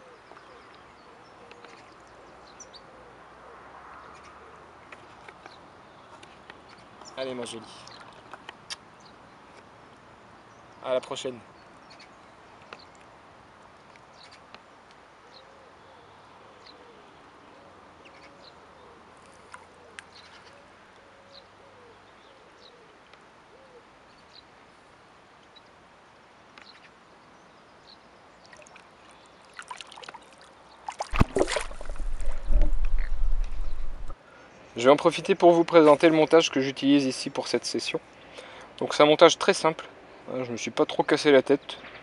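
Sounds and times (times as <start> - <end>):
birds calling: 0.0 - 9.7, 26.6 - 35.4
faint background noise: 0.0 - 42.0
loud rumbling buffeting noise: 31.6 - 34.2.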